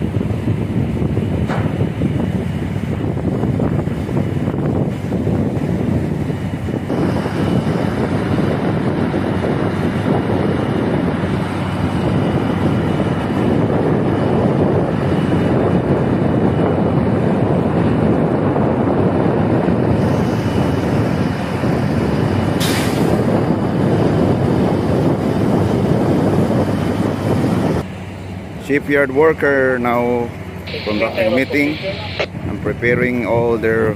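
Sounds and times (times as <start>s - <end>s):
machinery noise: 30.0s - 32.5s
faint high whine: 30.6s - 32.3s.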